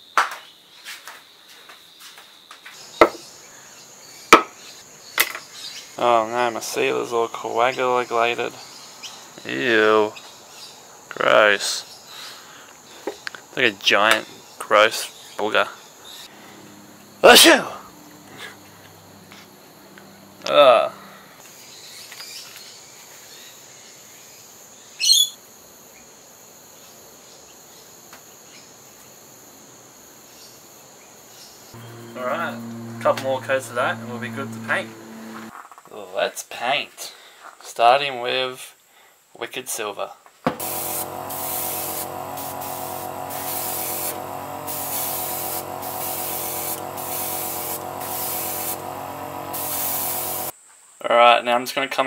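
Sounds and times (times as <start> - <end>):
insects droning: 1.1 - 35.6, 40.6 - 51.7
air compressor humming: 16.3 - 21.2, 31.8 - 35.5, 40.5 - 50.5
airbrush hissing: 31.8 - 35.5, 40.6 - 50.5.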